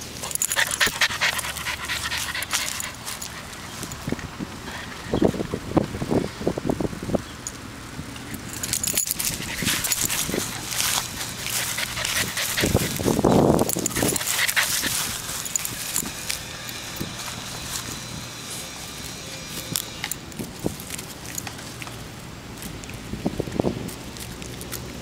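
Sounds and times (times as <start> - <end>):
rustle of grass and handling: 0.0 - 4.4, 8.4 - 25.0
puppy panting and snuffling: 0.0 - 5.0, 8.2 - 22.0.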